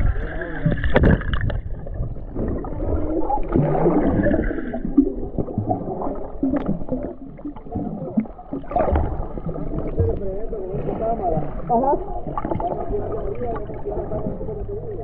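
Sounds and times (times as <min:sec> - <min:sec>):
underwater gurgling and bubbling: 0:00.0 - 0:15.0.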